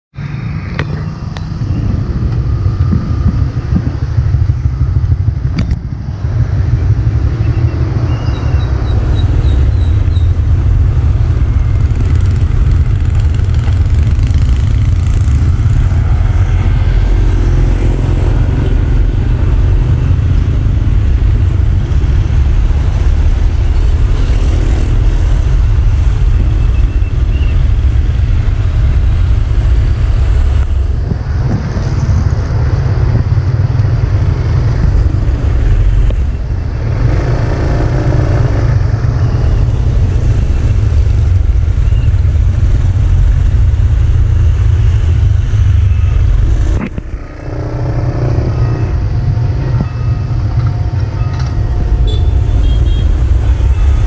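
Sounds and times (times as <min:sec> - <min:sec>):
loud steady low rumble: 0:00.1 - 0:54.0
motorcycles riding past: 0:00.2 - 0:27.0, 0:44.5 - 0:54.0.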